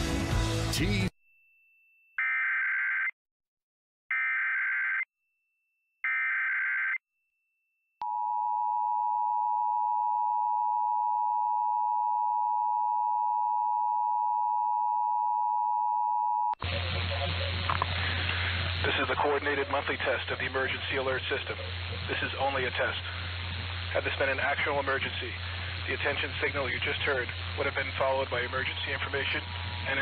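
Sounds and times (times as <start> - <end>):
broadcast hiss: 16.6 - 30.0.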